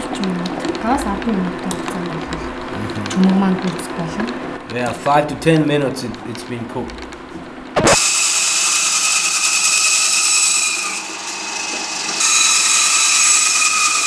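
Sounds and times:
band saw cutting through bone: 7.8s - 14.0s.

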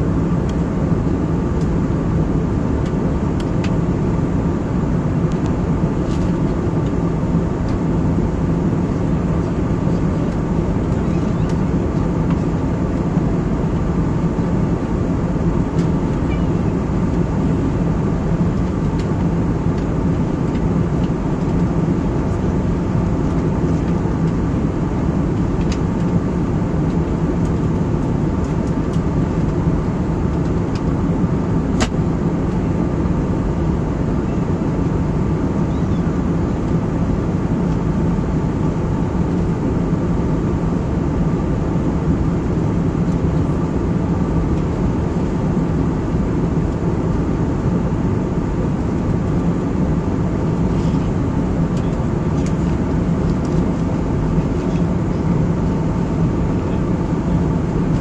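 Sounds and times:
airflow and jet engine drone: 0.0s - 58.0s
faint constant hum: 0.0s - 58.0s.

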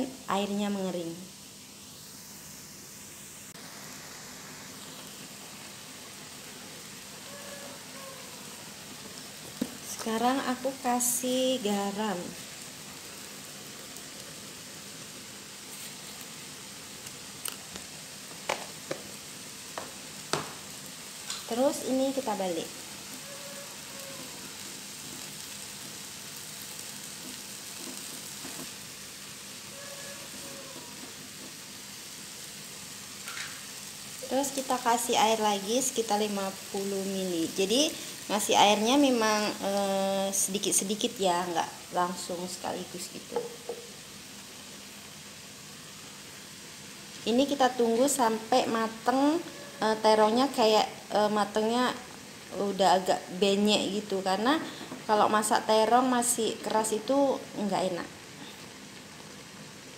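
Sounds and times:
eggplant sizzling in a wok: 0.0s - 59.9s
food bubbling in a frying pan: 1.3s - 39.6s, 57.4s - 59.9s.

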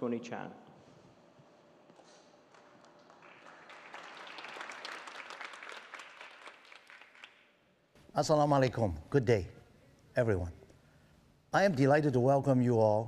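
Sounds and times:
audience applause: 2.5s - 7.5s.

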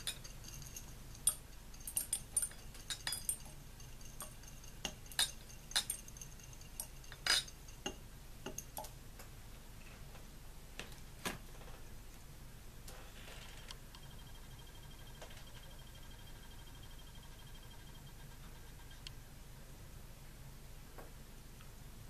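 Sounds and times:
glassy ringing: 0.0s - 8.9s, 14.0s - 19.1s
metal contacts clinking on glass: 0.0s - 8.9s.

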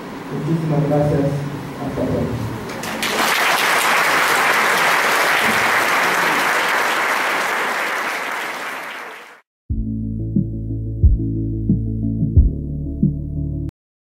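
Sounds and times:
audience applauding: 2.7s - 9.4s
music with steady low tones: 9.7s - 13.7s.

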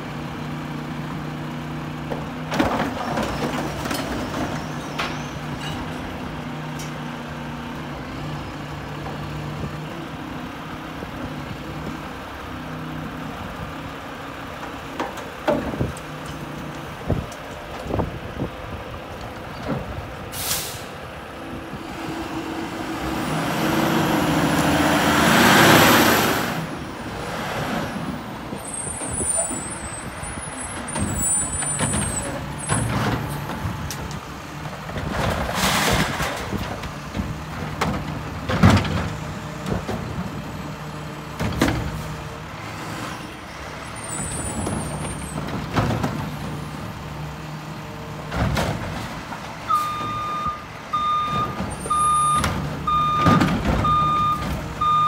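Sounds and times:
garbage truck engine revving: 21.7s - 28.6s
clunks of carts and arm: 30.8s - 40.3s, 48.2s - 55.0s.

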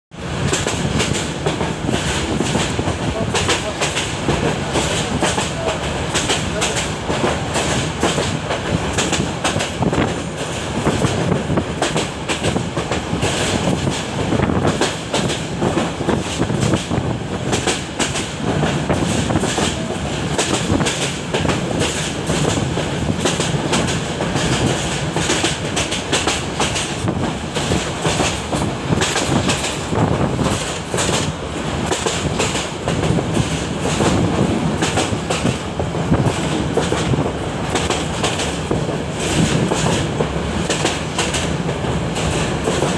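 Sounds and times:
train rumbling: 0.1s - 42.9s.

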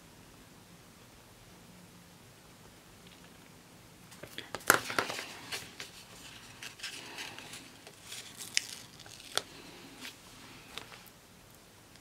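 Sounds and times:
paper stickers peeling and rustling: 4.2s - 11.0s.

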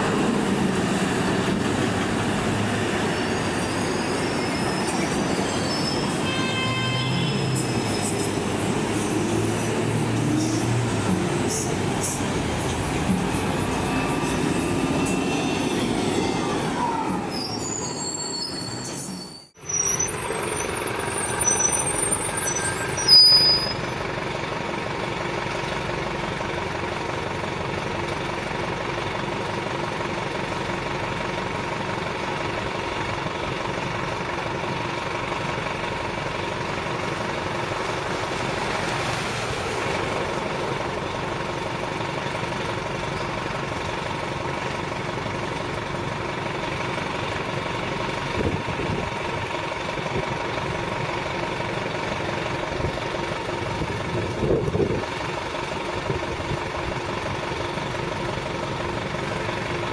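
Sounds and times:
bus idling with diesel hum: 0.0s - 18.9s, 19.5s - 59.9s
bus pulling away: 0.0s - 59.9s
high-pitched brake squeals: 2.8s - 10.8s, 11.5s - 24.0s.

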